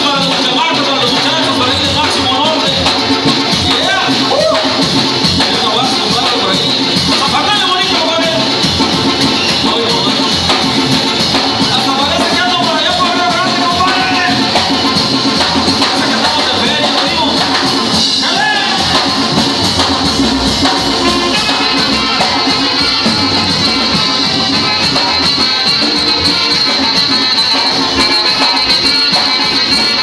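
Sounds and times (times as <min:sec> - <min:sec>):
drums: 0:00.0 - 0:30.0
live band playing dance music: 0:00.0 - 0:30.0.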